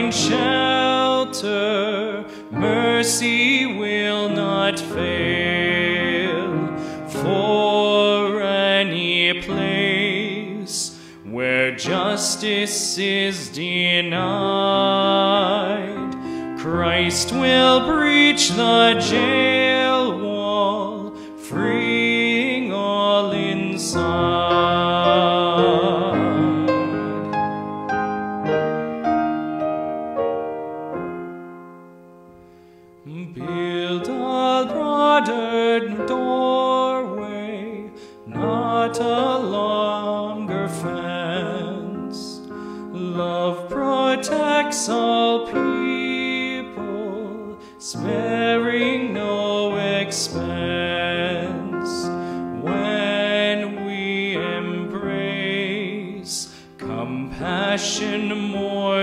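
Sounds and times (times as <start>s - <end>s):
man singing a hymn: 0.0s - 27.7s, 33.0s - 59.0s
grand piano accompaniment: 0.0s - 59.0s.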